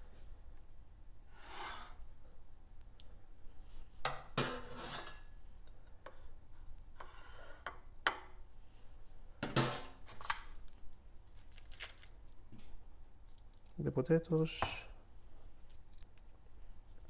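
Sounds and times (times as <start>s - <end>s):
spoon scraping a plate: 4.4s - 5.3s.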